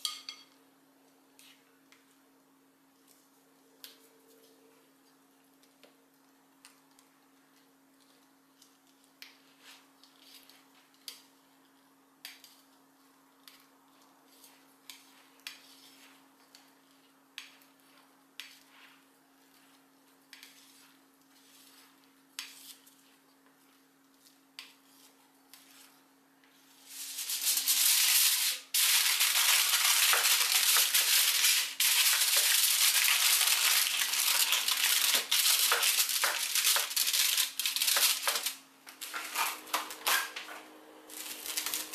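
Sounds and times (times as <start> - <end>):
spatula scraping a steel bowl: 18.4 - 23.2
plastic cling film crinkling: 27.2 - 40.4, 41.1 - 41.9.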